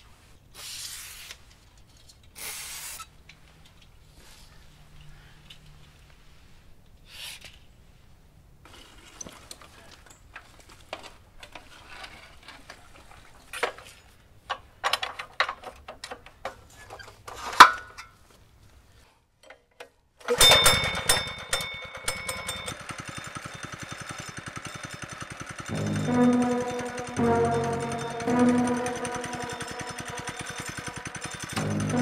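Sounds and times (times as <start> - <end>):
small gasoline engine running: 20.4 - 32.0.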